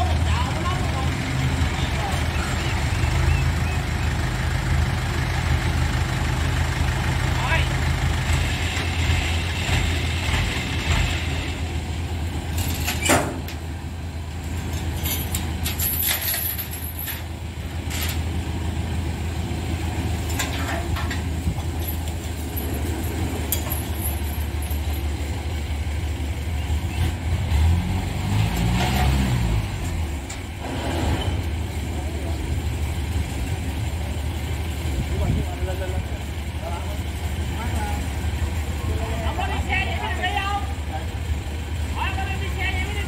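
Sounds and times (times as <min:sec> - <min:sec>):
heavy engine idling and revving: 0:00.0 - 0:43.0
metal ramps clanking: 0:12.5 - 0:13.6, 0:20.2 - 0:24.4.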